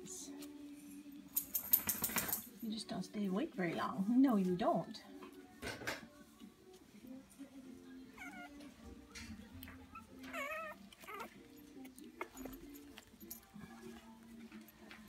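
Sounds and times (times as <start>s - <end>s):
quiet music: 0.0s - 15.0s
puppies whining: 7.7s - 15.0s
puppy crying: 8.1s - 8.8s, 9.6s - 12.5s.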